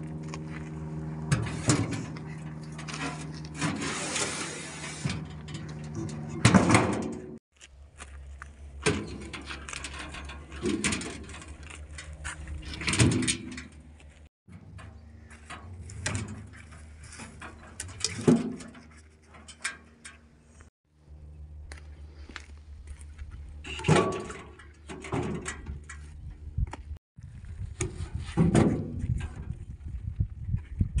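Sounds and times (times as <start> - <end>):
logs thudding into metal trailer: 23.7 - 25.7.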